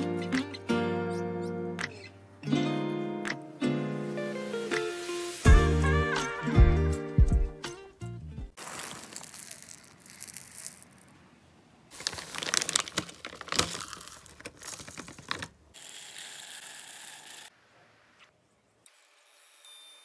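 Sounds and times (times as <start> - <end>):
wax beads pouring into metal pot: 8.6 - 11.1, 11.9 - 17.5
plastic bag crinkling: 8.6 - 11.2, 11.9 - 15.7.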